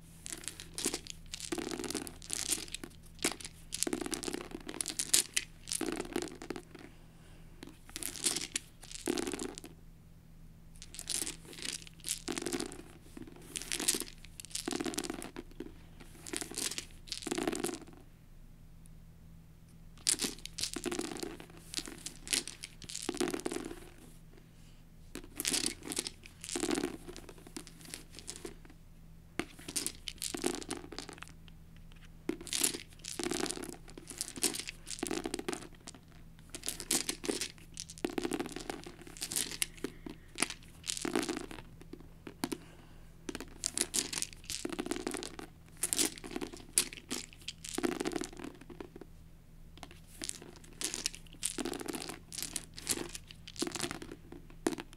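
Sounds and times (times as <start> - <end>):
plastic dice clattering on book: 0.2 - 6.9, 7.6 - 9.8, 10.8 - 18.0, 20.0 - 24.1, 25.1 - 28.8, 29.4 - 42.7, 43.3 - 49.1, 49.8 - 54.9.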